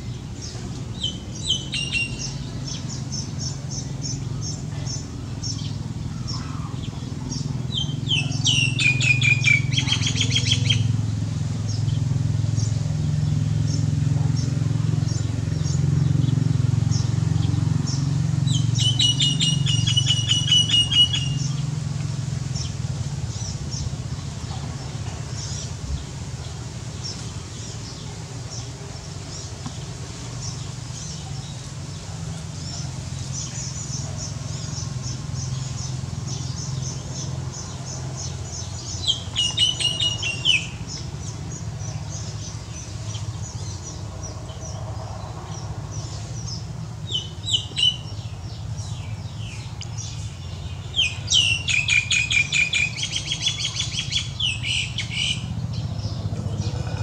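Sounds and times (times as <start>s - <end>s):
bird chattering song: 0.0s - 57.0s
steady low hum: 53.2s - 57.0s.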